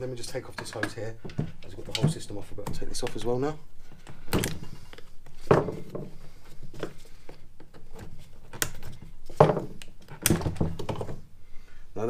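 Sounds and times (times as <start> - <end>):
rustling handling noise: 0.0 - 11.4
plastic parts clicking and knocking: 0.3 - 3.2, 7.6 - 11.3.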